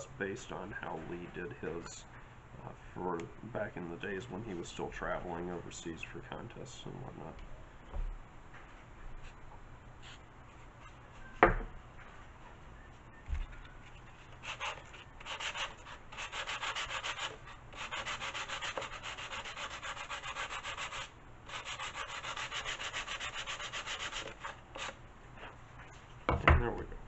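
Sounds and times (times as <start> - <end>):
sanding block rasping on wood: 14.4 - 25.0.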